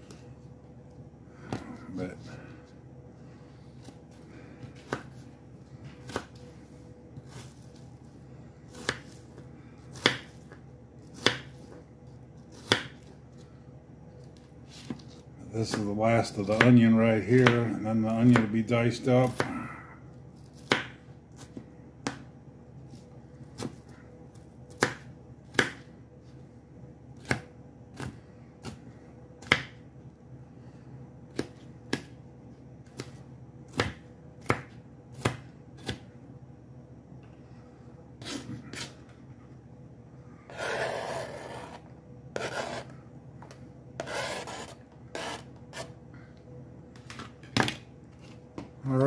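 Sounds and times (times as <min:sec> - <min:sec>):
knife chopping on cutting board: 0:09.9 - 0:10.5, 0:11.2 - 0:11.6, 0:12.5 - 0:13.1, 0:17.4 - 0:17.7, 0:20.5 - 0:22.3, 0:24.7 - 0:25.9, 0:32.9 - 0:36.1
knife scraping across board: 0:38.2 - 0:39.0, 0:40.5 - 0:43.0, 0:44.0 - 0:46.0.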